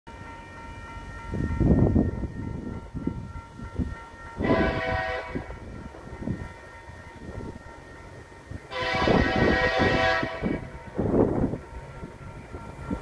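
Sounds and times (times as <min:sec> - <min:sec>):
wind buffeting microphone: 0:01.1 - 0:13.0
distant locomotive horn: 0:04.4 - 0:05.7, 0:08.7 - 0:10.8.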